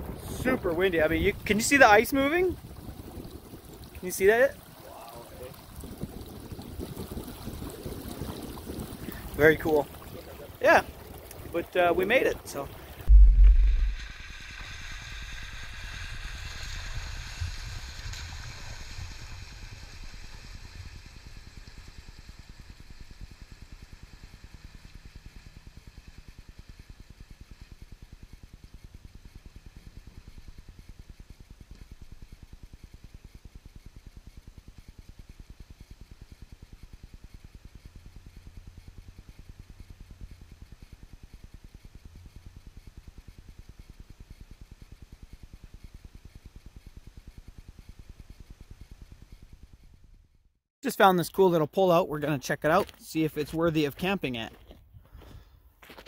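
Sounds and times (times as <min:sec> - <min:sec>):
heavy thump: 0:13.1 - 0:14.2.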